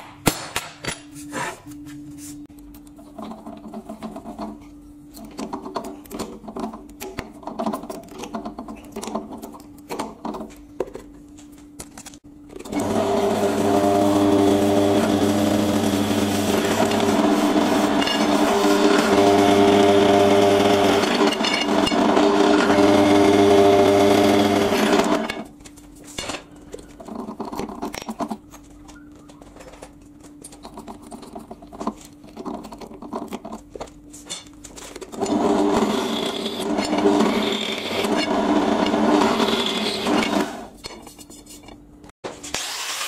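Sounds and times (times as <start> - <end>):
pillar drill boring through metal: 12.7 - 25.4, 35.2 - 40.7.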